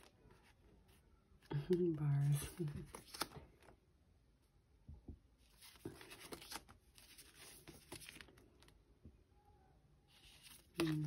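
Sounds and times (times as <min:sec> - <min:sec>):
paper sheets rustling: 0:02.2 - 0:03.4, 0:05.5 - 0:08.4, 0:10.1 - 0:11.0.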